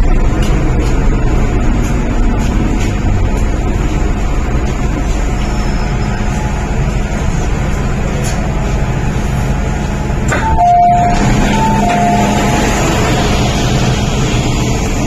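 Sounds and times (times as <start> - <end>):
train motors and wheels rumbling: 0.0 - 15.0
two-note door chime: 10.4 - 12.4.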